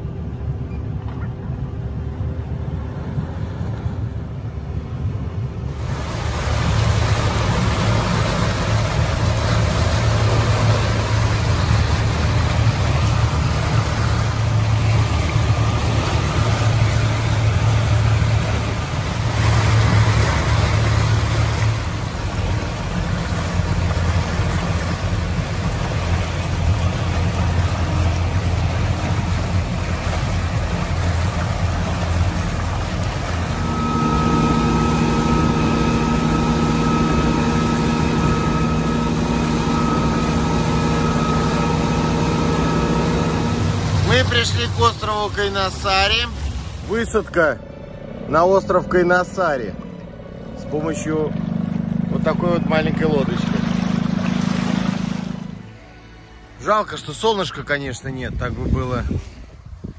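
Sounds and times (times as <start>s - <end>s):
motorboat engine humming: 0.0s - 59.9s
water noise: 0.0s - 59.9s
rushing wind: 58.1s - 59.9s.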